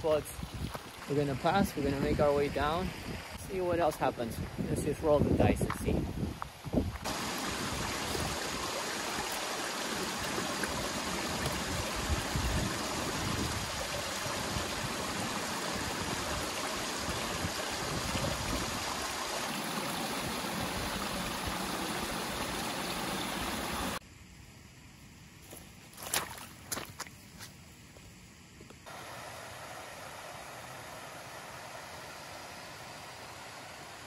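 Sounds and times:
stream rushing over rocks: 7.0 - 24.0, 28.9 - 34.0.

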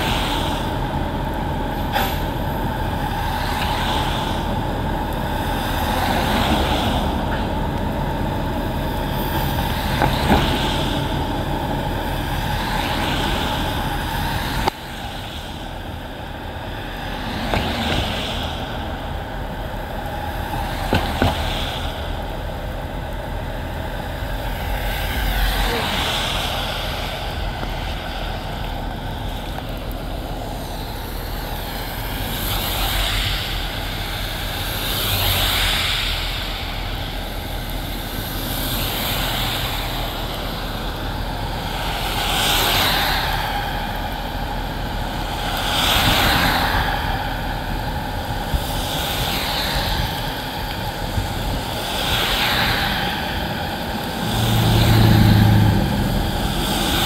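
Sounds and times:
vehicles passing on wet road: 0.0 - 57.0
deep engine sound: 53.4 - 57.0.

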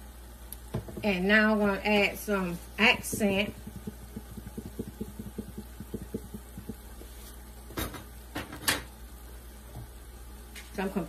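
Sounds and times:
steady low hum: 0.0 - 11.0
seasoning shaker shaking: 2.3 - 7.4
sharp knocks: 3.0 - 6.9.

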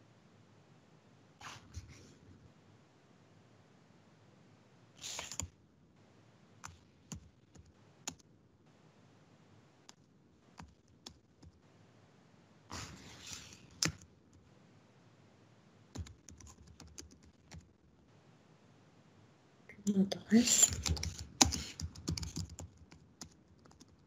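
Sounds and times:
keyboard and mouse clicks: 5.1 - 5.5, 13.2 - 14.1, 20.6 - 24.0.

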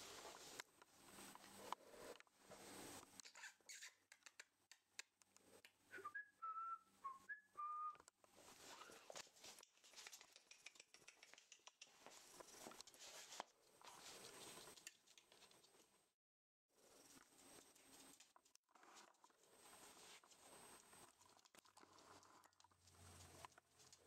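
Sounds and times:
person whistling short notes: 5.9 - 8.1
puppy claws on wooden floor: 9.0 - 15.9.

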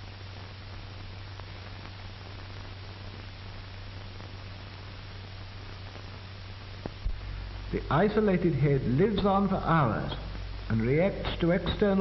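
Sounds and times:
faint crackle clicks: 0.0 - 7.2
film soundtrack hiss and hum: 0.0 - 12.0.

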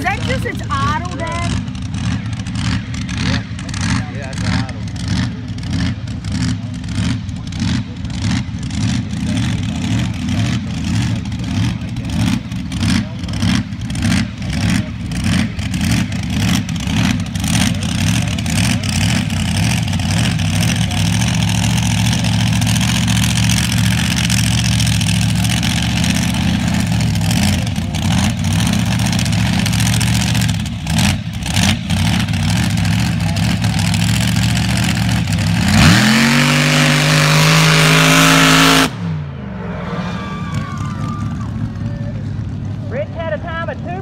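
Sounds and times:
engine idling and revving: 0.0 - 44.0.

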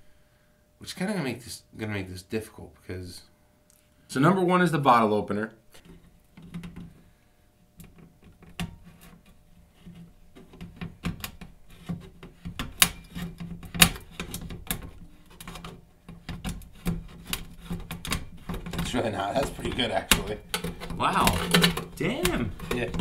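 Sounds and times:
can opener clicking and scraping metal: 7.8 - 23.0.

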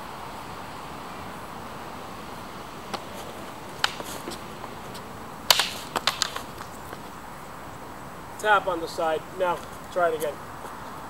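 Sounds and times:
wooden swords clacking: 2.9 - 4.5, 5.5 - 7.1.

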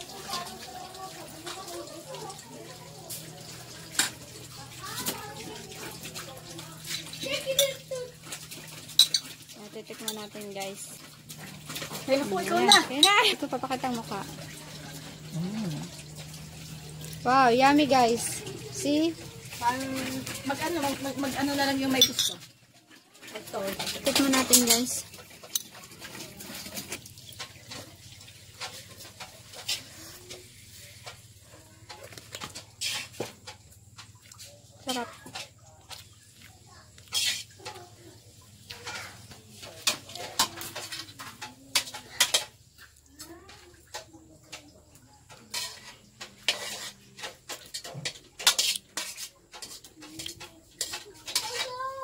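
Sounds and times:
metal spoon scraping a steel pot: 8.9 - 9.3, 19.6 - 22.4, 28.6 - 31.2, 32.4 - 33.3, 37.0 - 37.8, 38.7 - 42.6, 45.3 - 51.8
slurping and chewing: 14.8 - 17.2.

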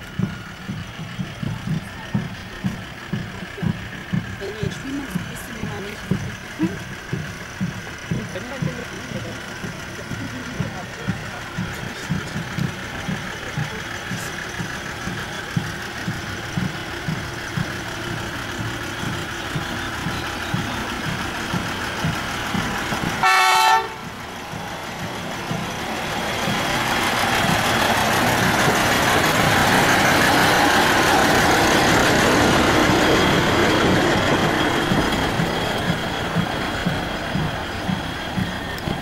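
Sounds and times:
diesel locomotive chugging: 0.0 - 39.0
short horn toot: 23.2 - 24.0.

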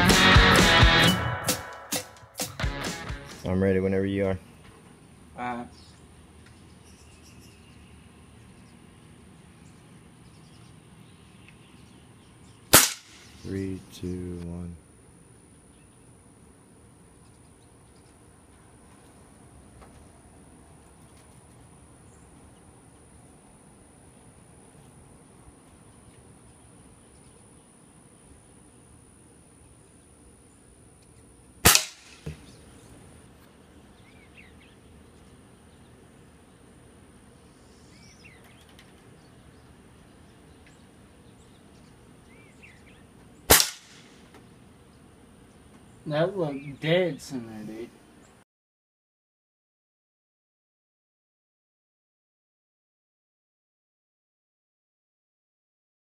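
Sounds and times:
low ambient hum: 3.4 - 48.4
bird chirps: 5.5 - 14.2, 33.8 - 36.7, 37.4 - 43.5, 45.8 - 47.4
rifle shot: 12.7 - 13.5, 31.6 - 32.4, 43.5 - 44.2.

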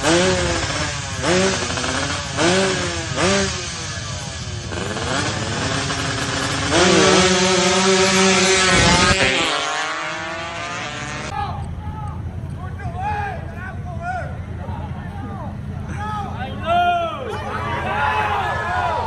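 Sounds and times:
two-stroke motorcycle engine revving: 0.0 - 11.4.

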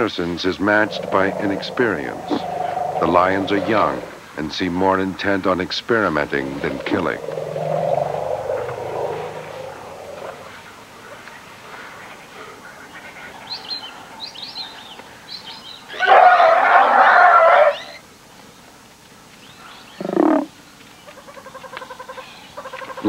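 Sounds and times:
lower elephant call: 0.0 - 4.2, 6.2 - 10.6
elephant calf screaming: 0.5 - 4.2, 6.3 - 10.5, 16.0 - 18.0.

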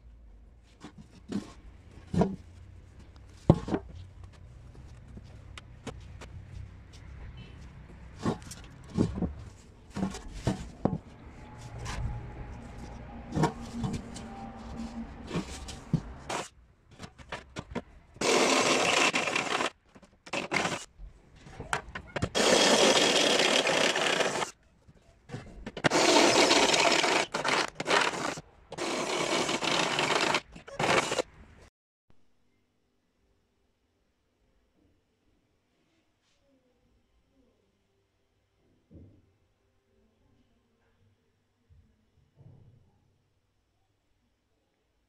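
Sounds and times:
drill boring through metal: 18.2 - 19.7, 20.3 - 20.8, 22.2 - 24.5, 25.8 - 31.2.

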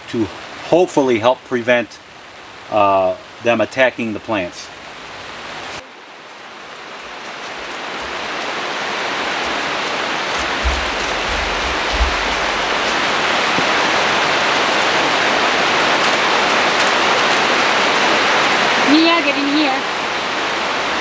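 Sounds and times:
rain on greenhouse roof: 0.0 - 21.0
dull low thumps: 9.5 - 13.9.

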